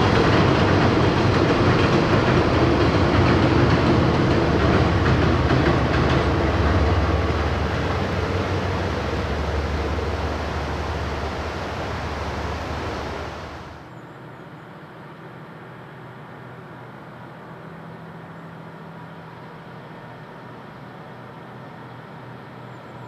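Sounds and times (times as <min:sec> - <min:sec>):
freight wagons rumbling: 0:00.0 - 0:13.8
diesel locomotive drone: 0:00.0 - 0:23.0.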